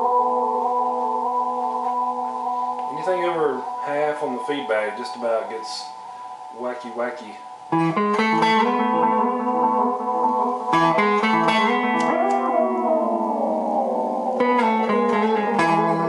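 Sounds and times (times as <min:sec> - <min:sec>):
electric guitar chords with echoes: 0:00.0 - 0:03.8, 0:07.5 - 0:16.0
delay echoes bending down in pitch: 0:06.5 - 0:16.0.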